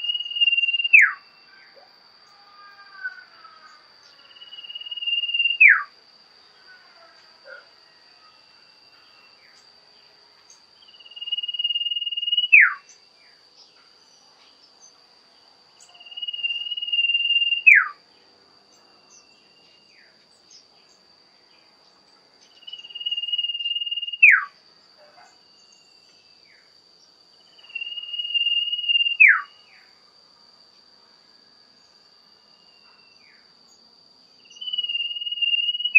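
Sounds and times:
bird whistling song: 0:00.0 - 0:01.2, 0:04.4 - 0:05.9, 0:11.0 - 0:12.9, 0:15.9 - 0:18.0, 0:22.6 - 0:24.5, 0:27.6 - 0:29.6, 0:34.5 - 0:35.9
high insect drone: 0:00.0 - 0:35.9.

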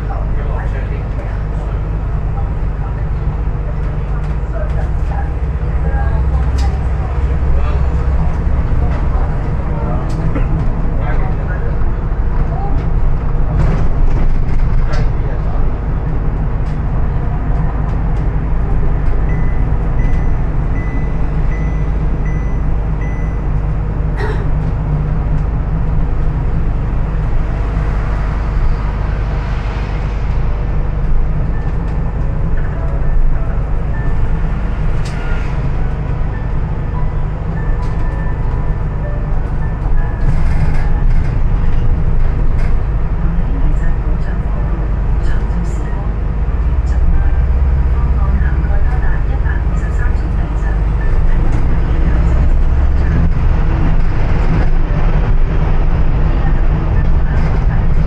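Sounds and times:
bus engine and road rumble: 0:00.0 - 0:58.0
high beep: 0:19.3 - 0:23.5.

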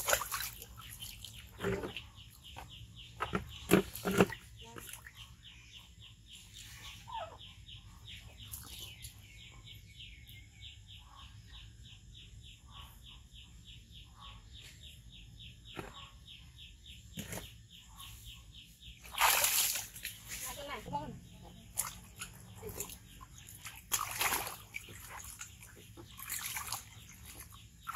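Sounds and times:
water splashing in tub: 0:00.0 - 0:05.2, 0:19.0 - 0:27.9.

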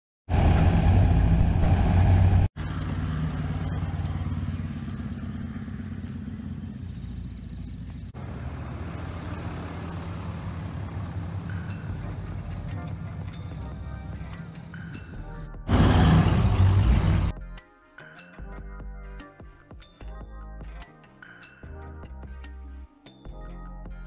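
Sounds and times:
truck engines running: 0:00.3 - 0:17.3.

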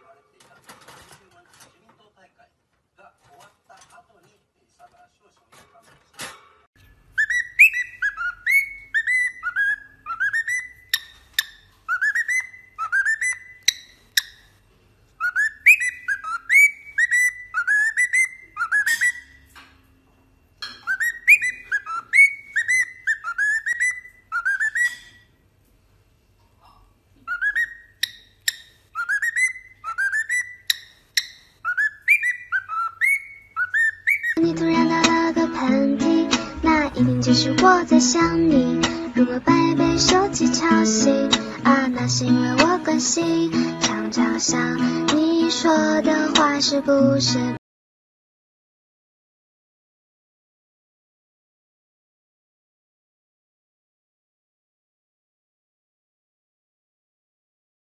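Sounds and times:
cockatiel whistling a tune: 0:07.1 - 0:14.4, 0:15.2 - 0:19.4, 0:20.7 - 0:25.2, 0:27.2 - 0:34.4.

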